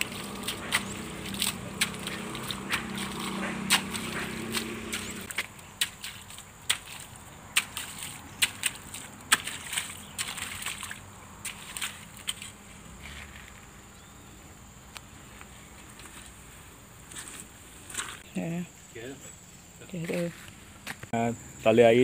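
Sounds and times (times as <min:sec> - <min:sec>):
hoe chopping wet mud: 0:00.0 - 0:13.0
hoe scraping: 0:00.0 - 0:14.3, 0:15.4 - 0:18.3.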